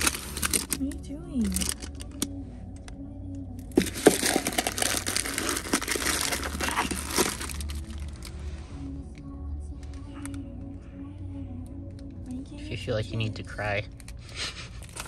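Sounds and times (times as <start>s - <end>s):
dense crinkling and crackling: 0.0s - 2.3s, 3.7s - 8.6s, 14.7s - 15.0s
low steady hum: 0.0s - 15.0s.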